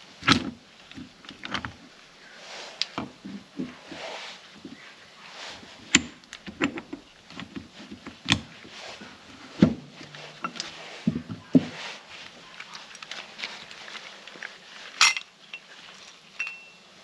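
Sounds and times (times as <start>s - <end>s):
metal parts clinking: 15.0s - 15.7s.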